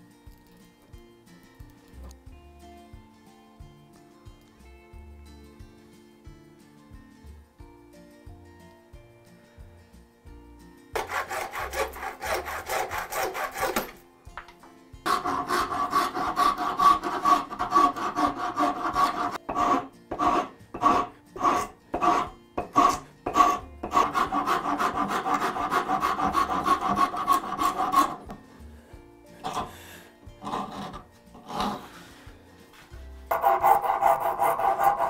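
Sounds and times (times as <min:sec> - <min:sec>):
rasp filing wood: 0:11.0 - 0:14.0, 0:15.1 - 0:28.4, 0:29.4 - 0:32.1, 0:33.3 - 0:35.0.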